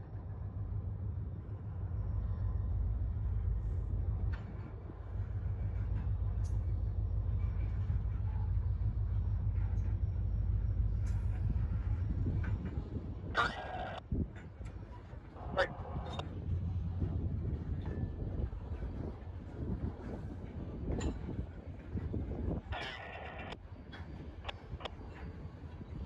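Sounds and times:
freight train rumbling past: 0.0s - 26.0s
sharp clicks from train wheels: 4.1s - 15.3s, 17.7s - 26.0s.

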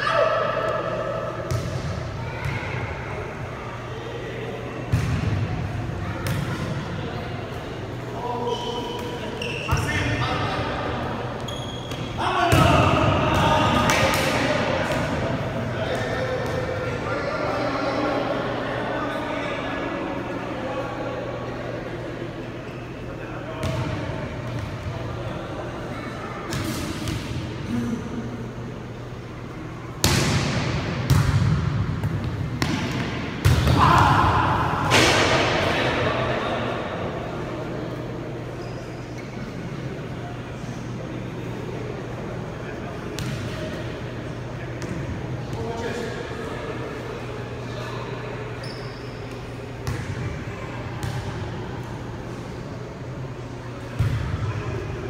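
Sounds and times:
steady low hum: 0.0s - 55.0s
volleyball hits echoing: 11.9s - 16.9s, 30.0s - 36.3s.

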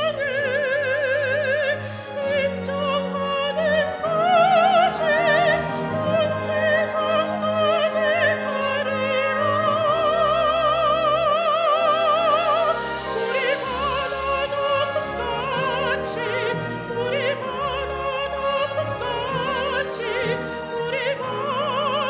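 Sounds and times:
instrumental accompaniment: 0.0s - 22.0s
woman singing operatic: 0.0s - 22.0s.

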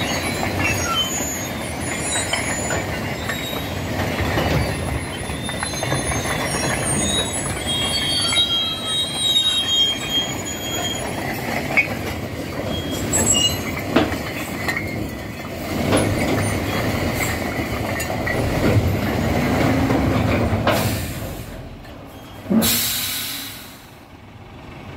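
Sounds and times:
high-pitched squealing: 0.0s - 12.0s
bricks clattering off truck bed: 11.3s - 21.0s.

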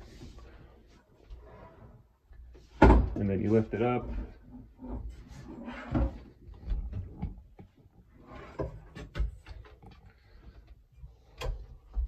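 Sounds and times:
wooden knocks and clunks: 2.4s - 5.1s, 5.8s - 10.1s.

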